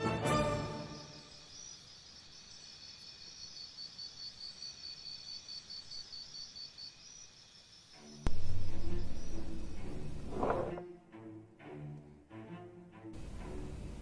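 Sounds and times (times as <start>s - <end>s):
background music: 0.0s - 1.3s, 8.3s - 14.0s
high-pitched pulsing chirp: 8.3s - 10.3s
loud low hit: 8.3s - 10.3s.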